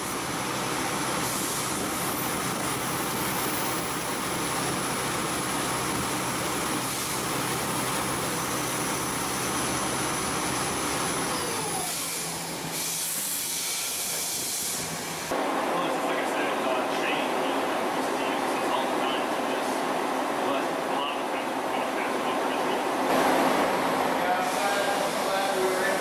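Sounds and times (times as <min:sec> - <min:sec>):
lathe cutting hiss: 0:00.0 - 0:15.4, 0:23.1 - 0:26.0
lathe high whine: 0:00.0 - 0:16.6, 0:23.0 - 0:26.0.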